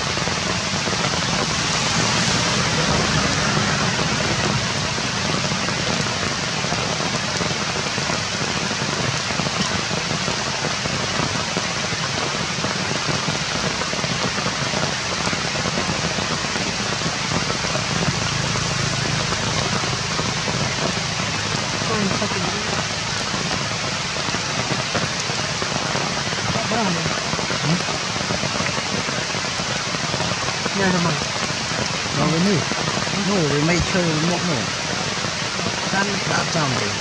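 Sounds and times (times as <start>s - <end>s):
rain falling on leaves: 0.0s - 37.0s.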